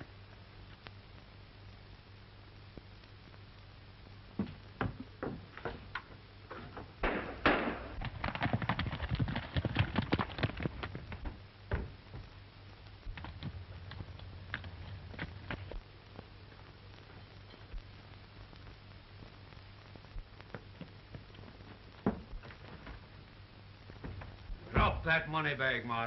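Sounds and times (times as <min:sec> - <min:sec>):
film soundtrack hum and hiss: 0:00.0 - 0:26.0
horses galloping hoofbeats: 0:04.4 - 0:12.4, 0:13.0 - 0:16.3.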